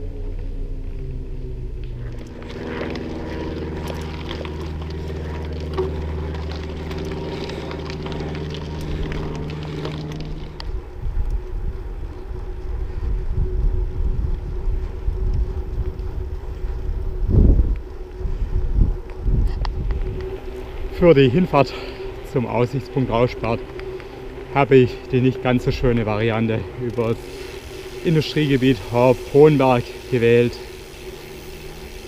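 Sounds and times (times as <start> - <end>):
traffic engine hum: 0.0 - 32.0
wind buffeting microphone: 0.0 - 32.0.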